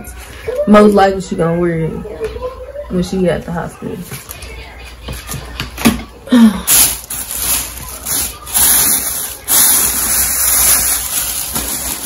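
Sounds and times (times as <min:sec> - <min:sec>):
plastic packaging crinkling: 0:06.6 - 0:12.0.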